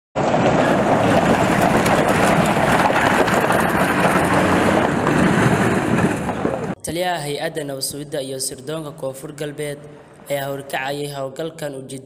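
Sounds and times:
trucks driving on gravel: 0.2 - 6.8.

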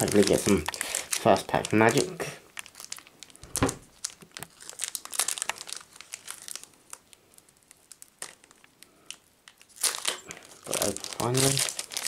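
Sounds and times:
foil wrapper crinkling: 0.0 - 12.0.

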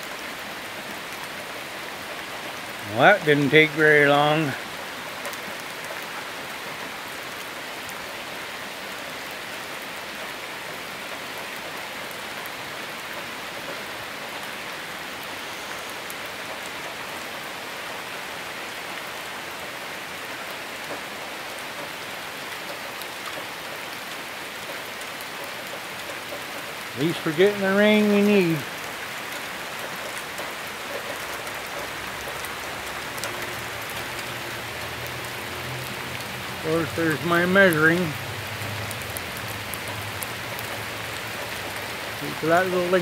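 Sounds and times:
rain on asphalt and foliage: 0.0 - 43.0
single raindrop ticks: 28.7 - 36.4, 37.7 - 42.2.

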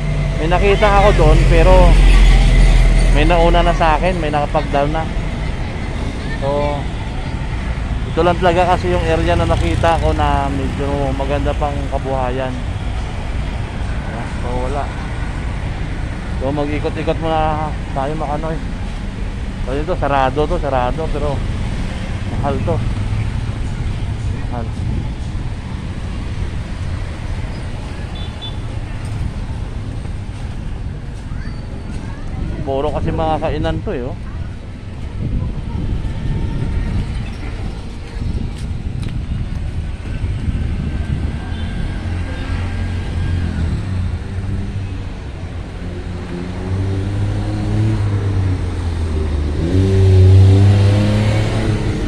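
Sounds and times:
vehicle engine accelerating: 0.0 - 17.3, 36.9 - 52.0
road traffic rumble: 0.0 - 52.0.

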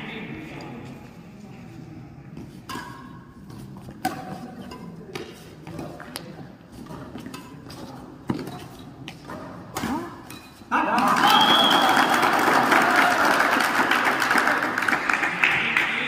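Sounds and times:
crowd chatter: 0.0 - 11.1
rackets striking shuttlecock: 2.6 - 10.6
cheering and applause: 10.9 - 16.0.

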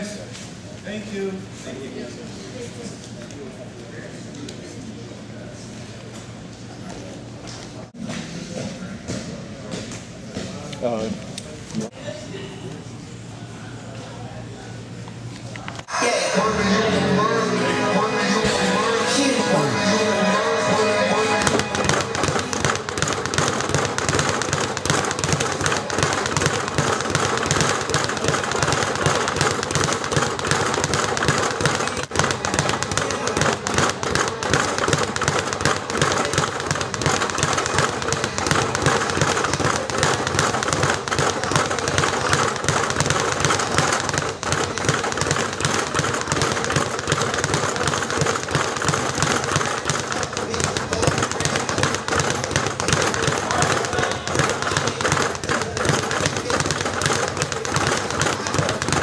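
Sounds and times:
speed bag being punched: 21.3 - 59.0.

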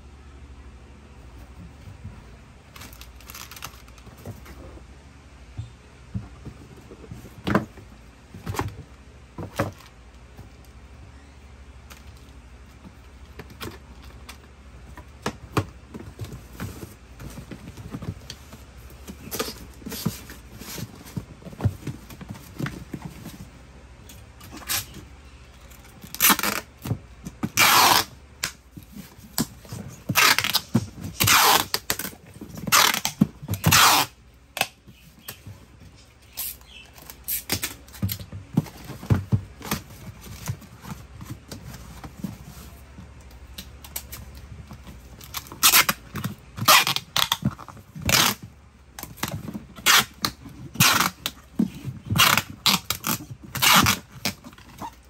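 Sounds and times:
packing tape on box: 2.7 - 4.7, 15.2 - 23.4, 25.6 - 35.6, 36.2 - 42.9, 43.5 - 55.0
cardboard box being handled: 12.7 - 23.7.

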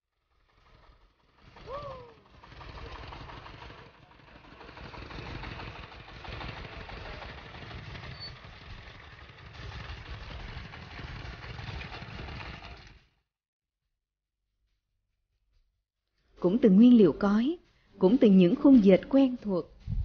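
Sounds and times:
small tractor engines running: 0.1 - 13.2.

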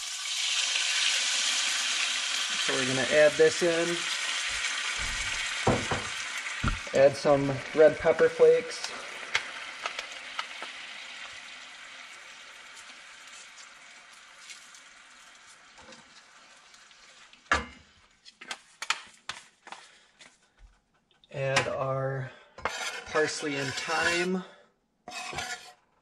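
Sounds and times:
oil sizzling in a skillet: 0.0 - 18.1
thump: 5.0 - 6.8.

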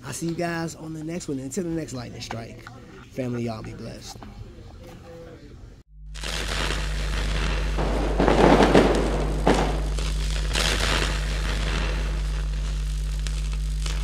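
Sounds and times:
steady low hum: 0.0 - 14.0
electric crackling: 6.1 - 14.0.

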